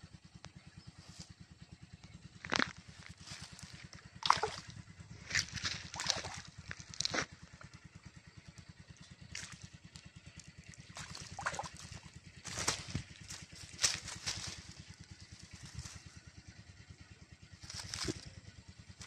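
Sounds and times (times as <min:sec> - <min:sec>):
low pulsing rumble: 0:00.0 - 0:19.0
fish splashing in water: 0:03.5 - 0:07.3, 0:10.4 - 0:13.2.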